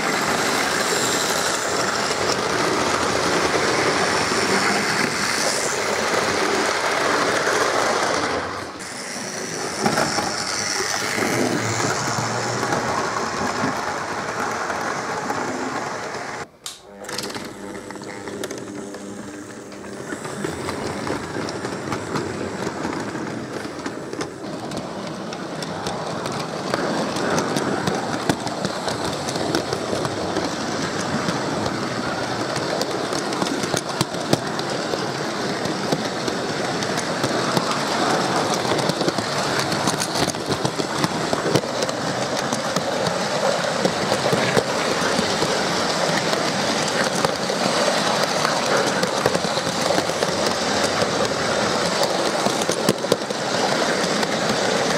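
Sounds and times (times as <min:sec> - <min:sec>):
model train rumbling: 0:00.0 - 0:54.9
rapid clicks from rail joints: 0:00.0 - 0:54.9.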